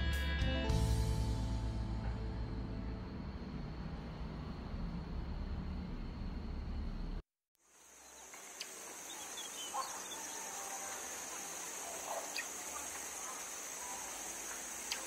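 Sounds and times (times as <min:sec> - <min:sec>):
background music: 0:00.0 - 0:03.8
high insect chorus: 0:07.6 - 0:15.0
faint bird chirps: 0:07.9 - 0:15.0.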